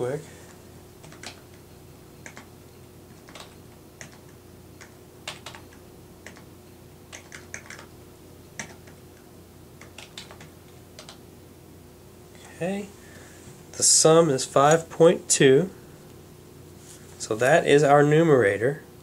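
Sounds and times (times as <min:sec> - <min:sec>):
calculator keys clicking: 0:01.0 - 0:01.4, 0:02.2 - 0:02.5, 0:03.2 - 0:06.5, 0:07.1 - 0:07.9, 0:09.8 - 0:11.2.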